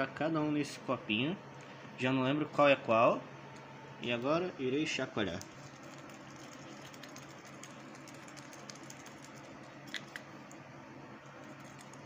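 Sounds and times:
paper slips rattling in a plastic cup: 5.2s - 10.2s, 11.4s - 12.0s.

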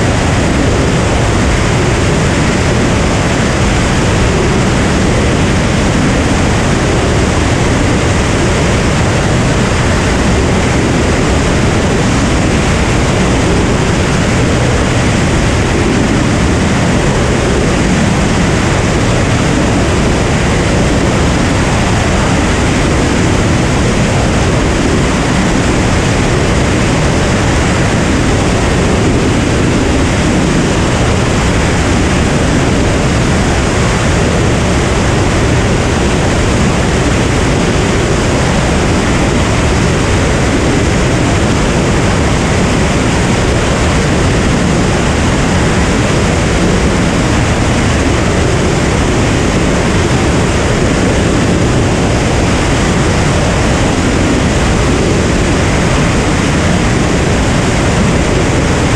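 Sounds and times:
propeller plane in flight: 0.0s - 58.9s.

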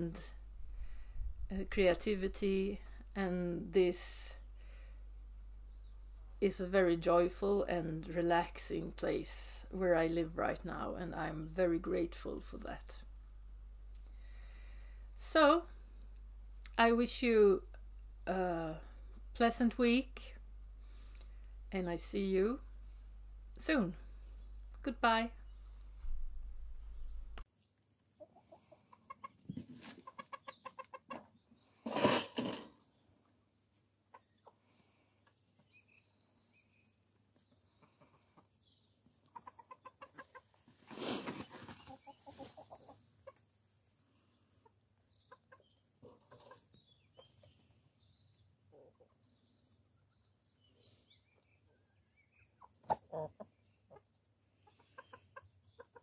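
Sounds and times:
chickens clucking: 28.0s - 33.0s, 34.0s - 34.6s, 37.4s - 43.8s, 44.4s - 47.6s, 48.5s - 50.2s, 51.3s - 56.0s.

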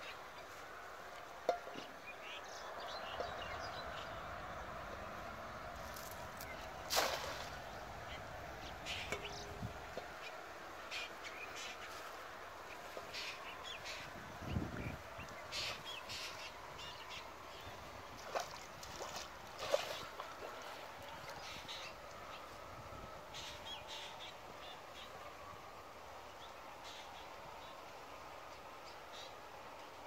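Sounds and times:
birds calling: 5.9s - 22.6s.

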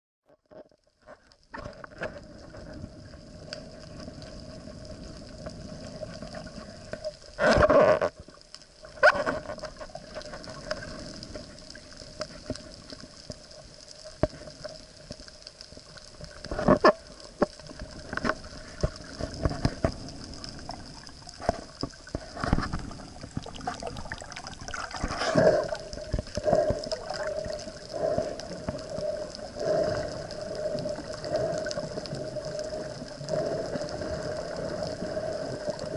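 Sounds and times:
underwater hum and hiss: 0.5s - 35.9s
bubbling knocks: 21.4s - 27.3s.

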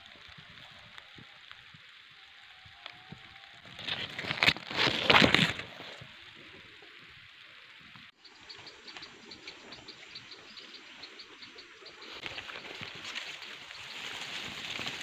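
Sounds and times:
leafy branches rustling: 0.0s - 7.0s, 12.0s - 15.0s
faint outdoor hiss: 0.0s - 15.0s.

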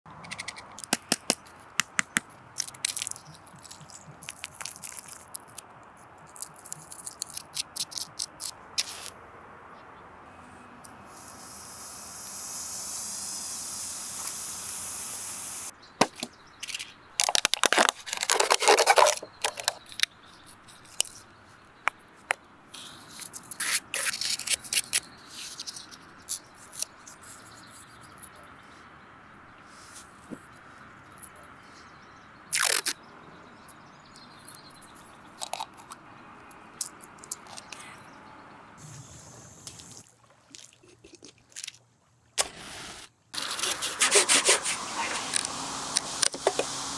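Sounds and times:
tablets cracking and clicking: 0.3s - 9.1s, 16.6s - 20.1s, 35.4s - 36.0s
smoking mixture hissing: 11.0s - 15.7s, 42.4s - 46.9s
scratchy scraping: 16.6s - 21.3s, 22.8s - 28.4s, 43.4s - 45.5s.

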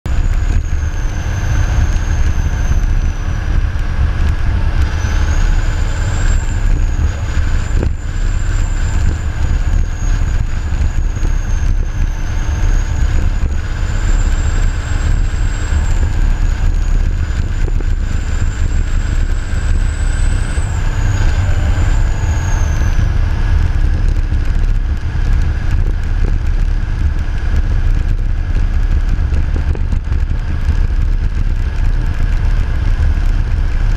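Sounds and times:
diesel engine rumbling: 0.0s - 33.9s
thin high whine: 0.1s - 24.8s.

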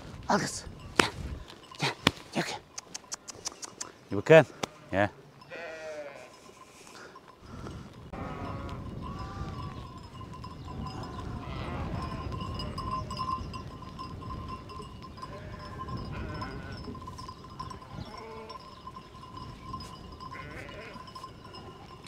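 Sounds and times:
sheep bleating: 4.5s - 6.5s, 8.1s - 9.8s, 10.8s - 12.8s, 15.2s - 16.9s, 17.8s - 18.7s, 20.3s - 22.0s
wind rumble on microphone: 7.5s - 22.0s.

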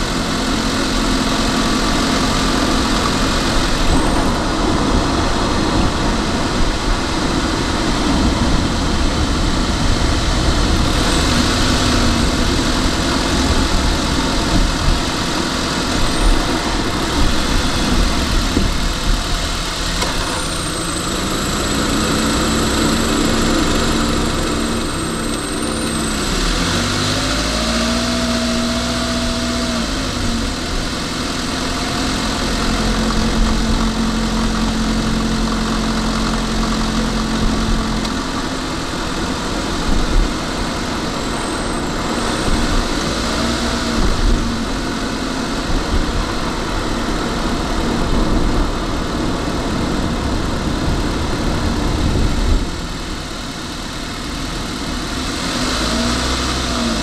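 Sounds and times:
car interior driving rumble: 0.0s - 57.0s
faint low hum changing pitch: 21.0s - 30.8s.

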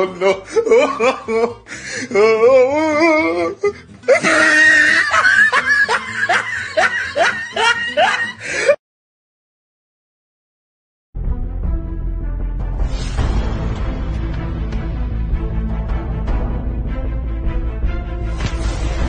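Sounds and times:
comic laughing voice: 0.0s - 8.8s.

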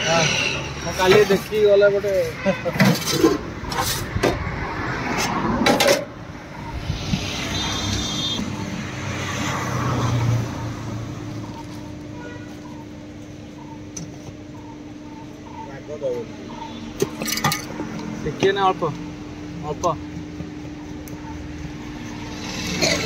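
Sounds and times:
street background noise: 0.0s - 23.0s
vehicle passing: 4.3s - 11.5s
metal pot lids clanking: 17.0s - 17.8s.

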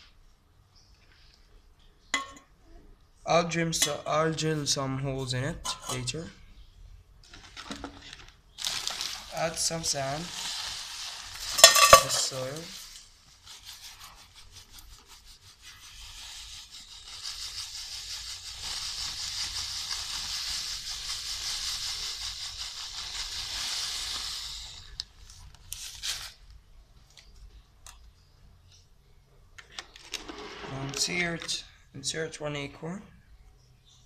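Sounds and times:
sand pouring into metal can: 8.6s - 14.2s, 15.6s - 25.0s.

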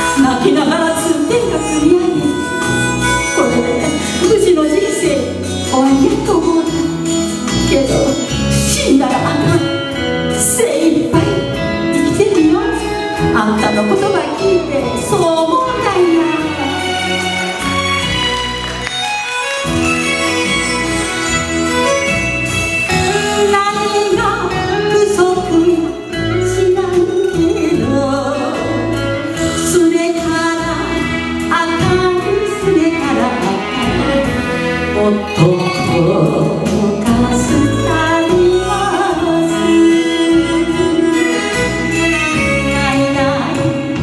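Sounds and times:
woman singing into microphone: 0.0s - 2.7s, 7.6s - 17.2s, 22.9s - 44.0s
instrumental accompaniment with bass: 0.0s - 44.0s.

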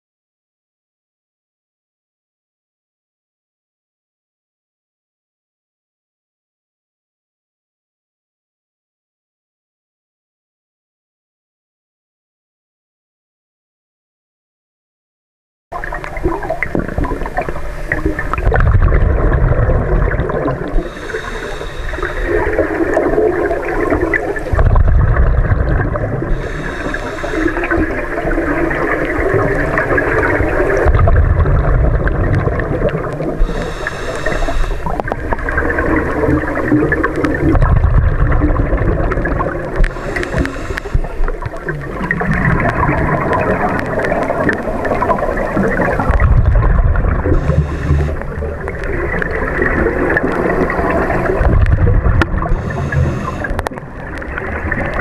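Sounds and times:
bubbles gurgling underwater: 15.7s - 55.0s
regulator hissing inhale: 20.7s - 23.0s, 26.3s - 28.8s, 33.4s - 35.3s, 39.8s - 41.5s, 47.4s - 48.4s, 52.5s - 53.7s.

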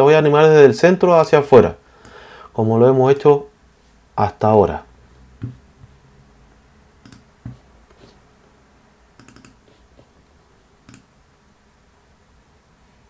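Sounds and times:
computer keyboard and mouse clicks: 7.0s - 7.6s, 9.2s - 9.6s, 10.8s - 11.1s.

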